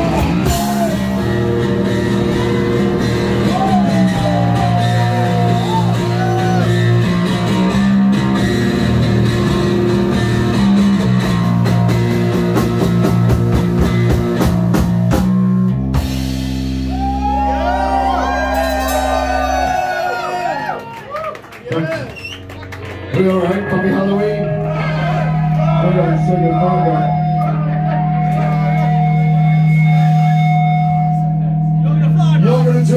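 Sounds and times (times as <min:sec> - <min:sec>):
drum kit: 0:00.0 - 0:20.6
bass guitar: 0:00.0 - 0:32.9
electric guitars: 0:00.0 - 0:32.9
voices shouting: 0:24.4 - 0:26.3.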